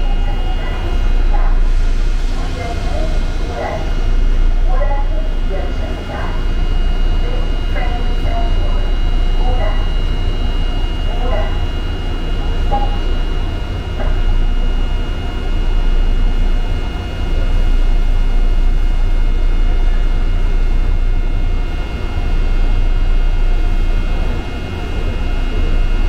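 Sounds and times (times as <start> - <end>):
high whining tones: 0.0 - 26.0
subway train rumble: 0.0 - 26.0.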